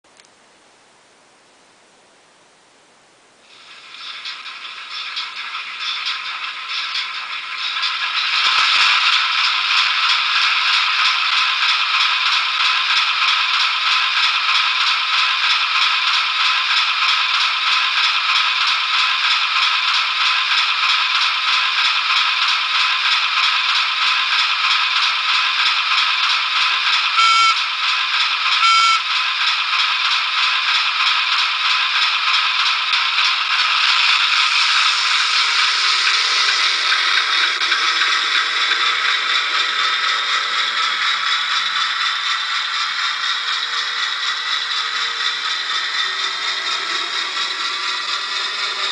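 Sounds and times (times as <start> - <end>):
diesel engine sound from small speaker: 3.5 - 48.9
short horn toots: 28.6 - 29.0.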